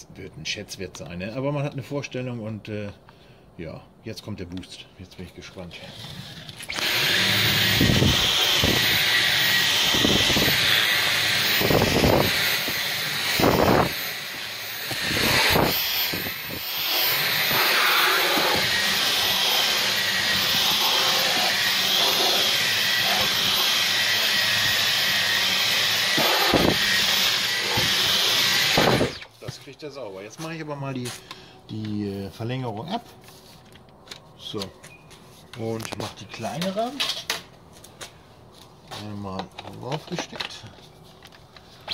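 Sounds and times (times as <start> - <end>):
vacuum cleaner running: 6.7 - 29.3.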